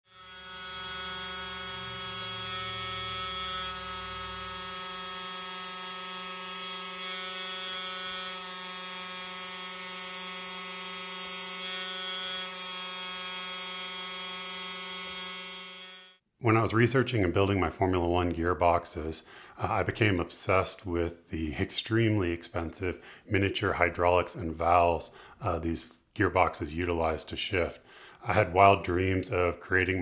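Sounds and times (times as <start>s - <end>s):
electric motor pump whine: 0.1s - 16.2s.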